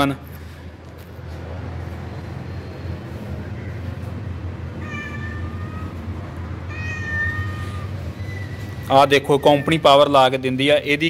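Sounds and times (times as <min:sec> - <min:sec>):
cat meowing: 0:04.7 - 0:10.0.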